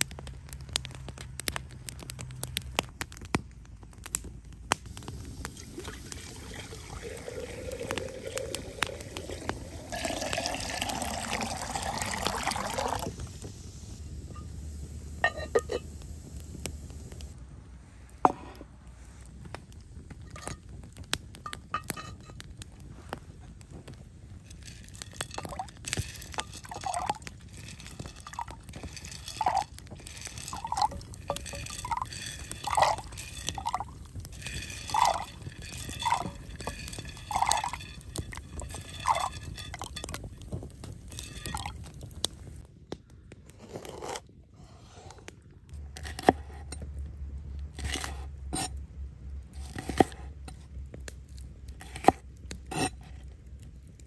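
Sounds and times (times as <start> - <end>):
beans plopping into water: 5.5 - 13.2, 24.5 - 40.4, 41.0 - 42.0
beans clicking on ceramic plate: 24.5 - 41.8.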